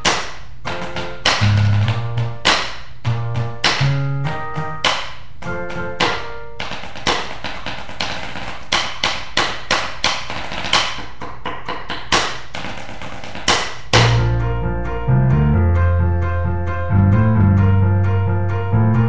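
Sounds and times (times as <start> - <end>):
piano chords: 0.0 - 7.4, 13.9 - 19.0
snare drum rolls: 12.2 - 14.3.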